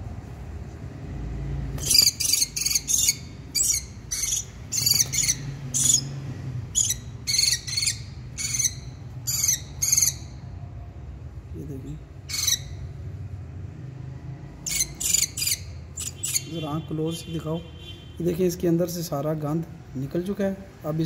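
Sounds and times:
lovebird giving shrill calls: 0:01.8 - 0:06.1, 0:06.8 - 0:10.3, 0:14.6 - 0:16.8.

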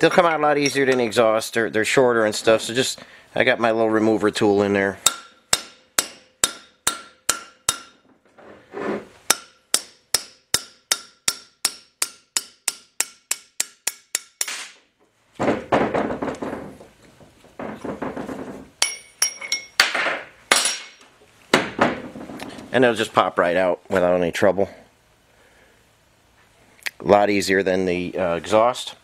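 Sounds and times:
hammer striking metal: 0:05.0 - 0:08.0, 0:09.3 - 0:14.8, 0:18.8 - 0:21.0
ringing metal clinks: 0:18.8 - 0:19.8.

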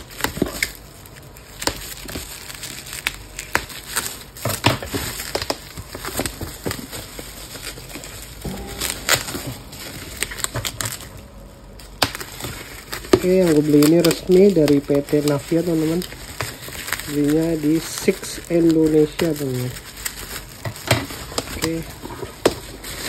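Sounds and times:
scissors cutting plastic: 0:00.0 - 0:08.4, 0:11.8 - 0:23.0
bubble wrap crinkling and crackling: 0:00.0 - 0:23.0.

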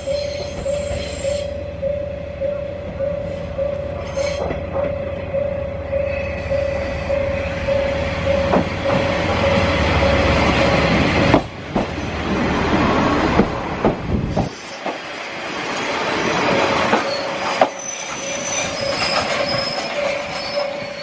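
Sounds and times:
high wheel and brake squeals: 0:00.0 - 0:01.6, 0:03.2 - 0:04.7, 0:16.9 - 0:21.0
railcar rumble: 0:00.0 - 0:21.0.

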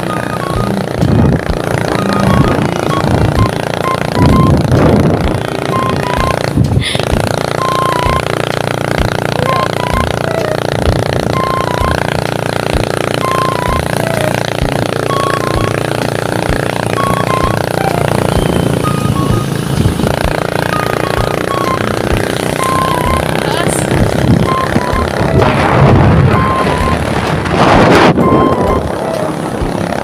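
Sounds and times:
wind buffeting microphone: 0:00.0 - 0:13.2, 0:13.8 - 0:30.0
high-pitched melody: 0:00.0 - 0:30.0
motorcycle running: 0:00.0 - 0:30.0.

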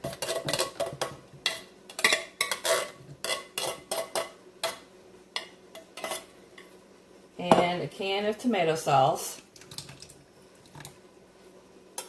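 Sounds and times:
metal spoon scraping in tin can: 0:02.0 - 0:04.3.

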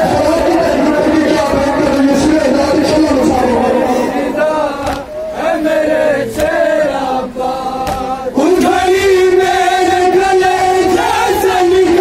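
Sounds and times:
men chanting in unison: 0:00.0 - 0:12.0
man singing into a microphone: 0:07.8 - 0:12.0.

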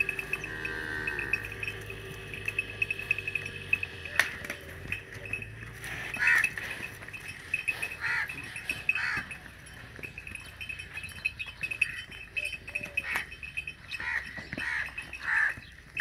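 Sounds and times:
farm animal bleating: 0:00.0 - 0:09.6, 0:12.8 - 0:15.7.

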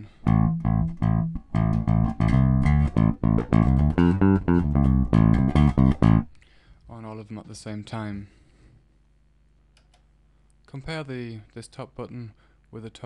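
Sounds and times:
electric bass guitar riff: 0:00.0 - 0:06.3.

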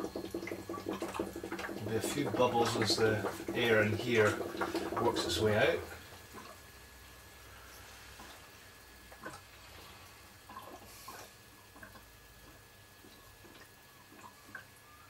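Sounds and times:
air bubbles clicking and plopping: 0:00.0 - 0:05.4, 0:10.4 - 0:14.8
faint steady hum: 0:00.0 - 0:15.0.

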